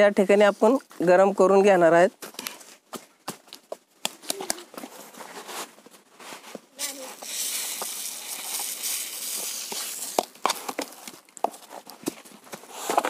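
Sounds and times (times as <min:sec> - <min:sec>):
sand pouring into plastic pipe: 0:06.8 - 0:10.3.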